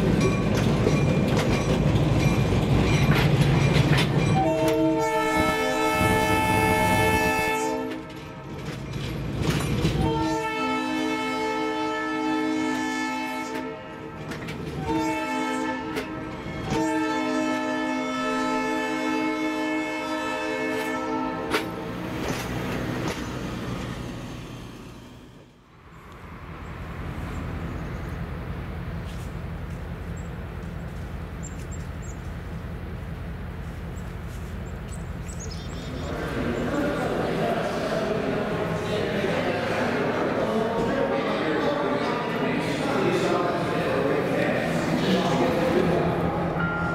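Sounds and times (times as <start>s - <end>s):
railcar engine rumble: 0.0s - 46.9s
railcar air horn: 4.4s - 8.5s, 10.0s - 21.9s.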